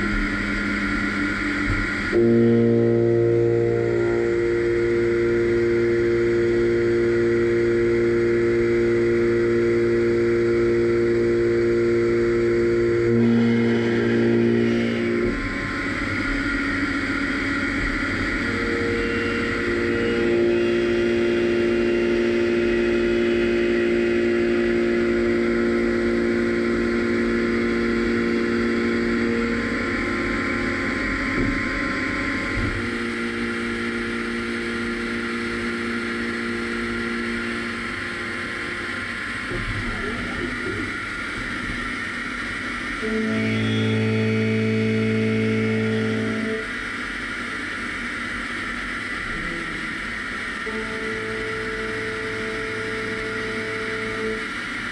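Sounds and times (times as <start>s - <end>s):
milling machine whining: 0.0s - 54.9s.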